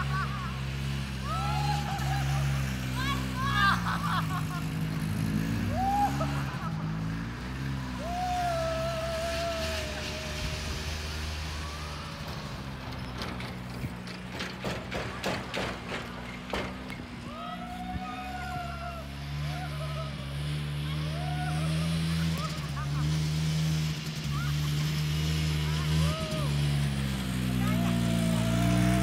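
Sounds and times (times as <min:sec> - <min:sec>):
snowmobile engine running: 0:00.0 - 0:29.0.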